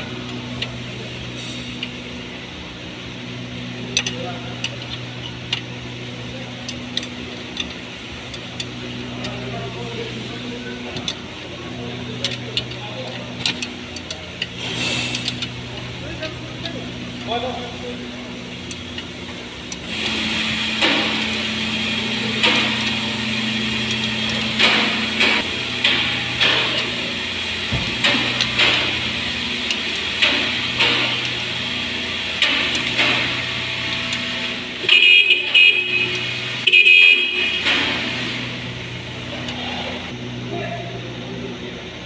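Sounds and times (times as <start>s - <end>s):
steady background hum: 0.0s - 42.0s
spanner clicking on bolt: 6.6s - 9.4s, 12.2s - 17.4s, 22.4s - 23.1s, 27.8s - 31.5s, 32.4s - 34.2s.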